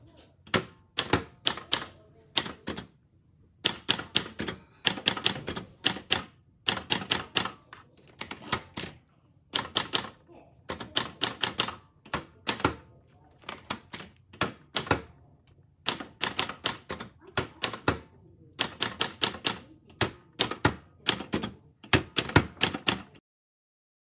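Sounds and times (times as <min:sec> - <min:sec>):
manual typewriter key strikes: 0:00.5 - 0:02.9, 0:03.6 - 0:09.0, 0:09.6 - 0:10.1, 0:10.7 - 0:12.8, 0:13.5 - 0:15.1, 0:15.8 - 0:23.2.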